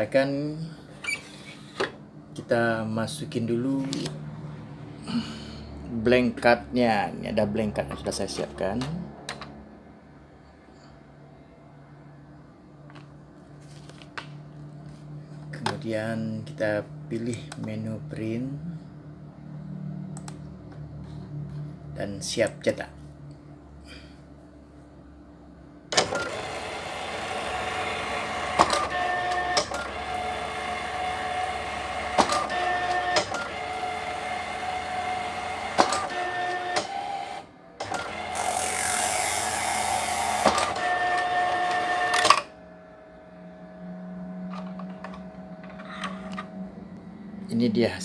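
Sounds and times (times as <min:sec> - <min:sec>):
card printer whirring: 0:25.9 - 0:46.8
sharp printer clicks: 0:26.0 - 0:42.5.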